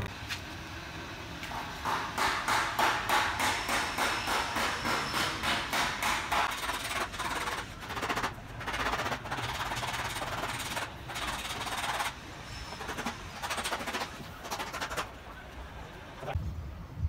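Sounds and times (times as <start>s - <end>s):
sandpaper rasping on car panel: 6.5s - 15.1s.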